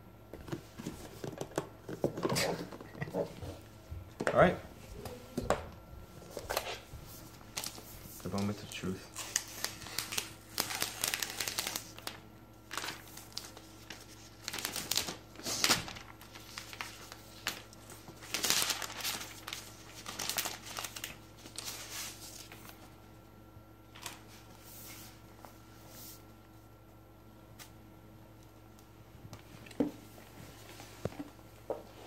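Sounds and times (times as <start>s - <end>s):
paper and plastic wrapping crinkling: 6.2s - 22.9s.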